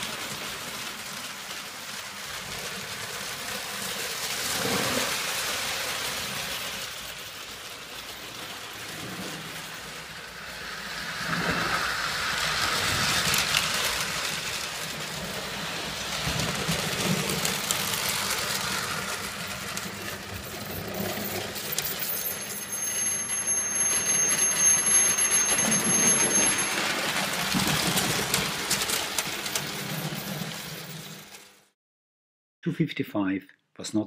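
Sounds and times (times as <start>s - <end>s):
toy train wheels rattling: 0.0s - 31.6s
faint high steady tones: 22.0s - 27.2s.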